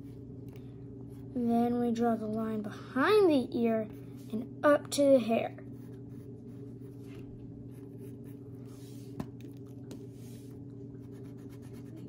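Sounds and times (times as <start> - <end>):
steady low hum: 0.0 - 12.0
pencil scratching on paper: 11.0 - 12.0.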